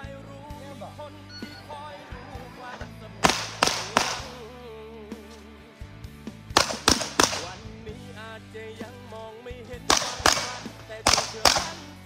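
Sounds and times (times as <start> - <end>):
background music: 0.0 - 12.0
shotgun shots: 2.8 - 4.5, 6.5 - 7.8, 9.9 - 12.0.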